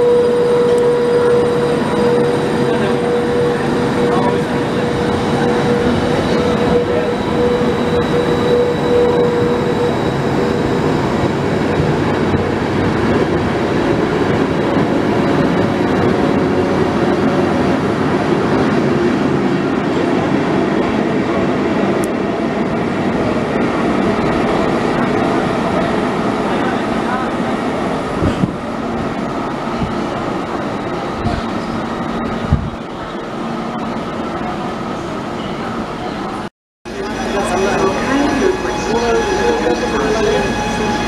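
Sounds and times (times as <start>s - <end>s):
steady whine: 0.0s - 13.5s, 36.9s - 41.0s
train wheels rumbling on rail: 0.0s - 41.0s.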